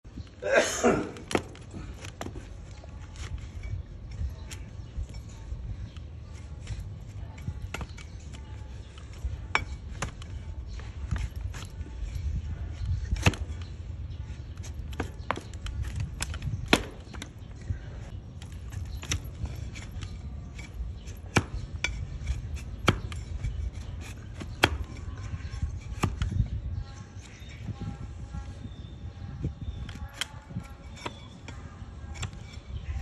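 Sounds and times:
hoof cracking under blade: 14.4s - 17.4s, 18.4s - 26.5s.

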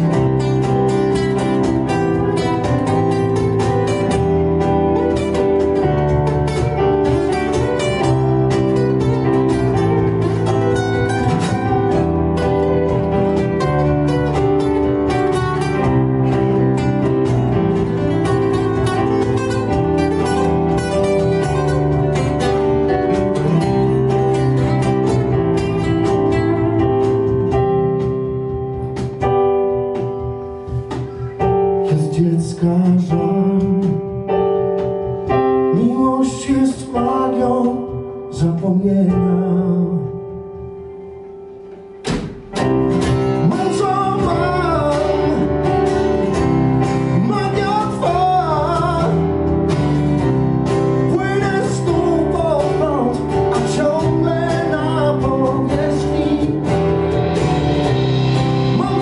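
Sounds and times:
wavering lead melody: 0.0s - 31.8s
live acoustic band playing: 0.0s - 59.0s.

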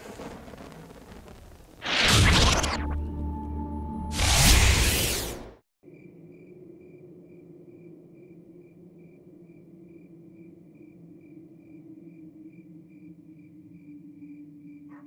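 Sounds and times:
crickets chirping: 5.8s - 15.0s.

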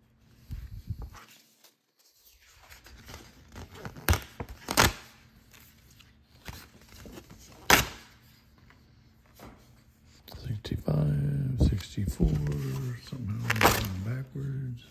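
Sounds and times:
paper tickets rustling: 10.5s - 14.9s.

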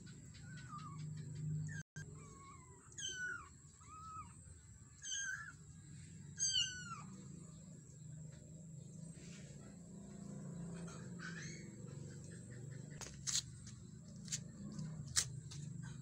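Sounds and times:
kittens mewing: 2.0s - 4.4s, 5.0s - 5.6s, 6.4s - 7.4s.

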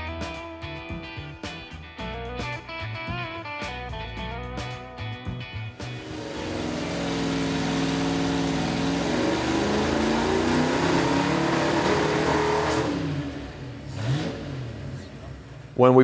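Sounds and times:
engine revving under load: 5.8s - 16.0s.

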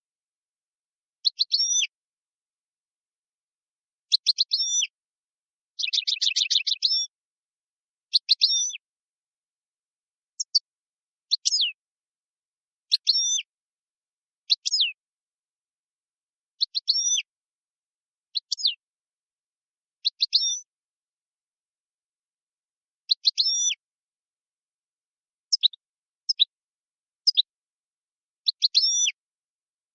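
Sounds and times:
finch chirping: 1.2s - 1.9s, 4.1s - 4.9s, 5.8s - 7.2s, 8.1s - 8.8s, 10.3s - 11.8s, 12.9s - 13.5s, 14.4s - 15.0s, 16.6s - 17.3s, 18.3s - 18.8s, 20.0s - 20.7s, 23.1s - 23.8s, 25.5s - 26.6s, 27.2s - 27.5s, 28.4s - 29.2s.

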